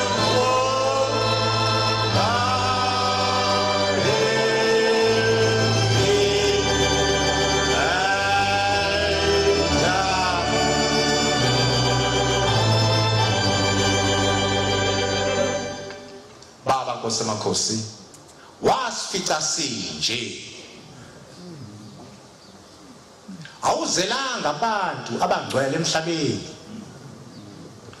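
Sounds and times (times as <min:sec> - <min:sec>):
person singing a hymn: 0:00.0 - 0:16.1
organ chords: 0:00.0 - 0:16.4.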